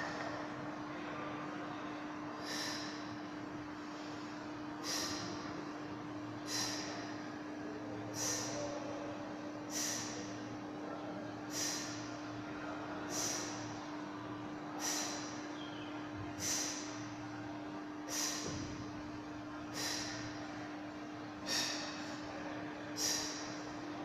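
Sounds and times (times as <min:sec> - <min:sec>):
low room hum: 0:00.0 - 0:24.0
man's sharp exhalations: 0:08.1 - 0:08.7, 0:21.4 - 0:22.1.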